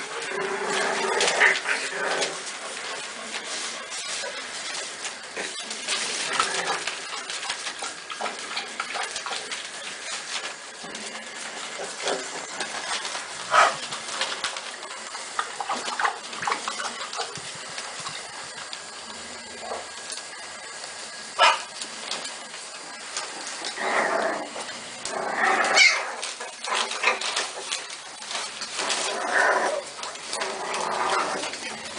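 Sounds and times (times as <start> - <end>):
newspaper crinkling: 0.0 - 31.9
puppies whimpering and yelping: 3.4 - 10.4, 25.4 - 27.4.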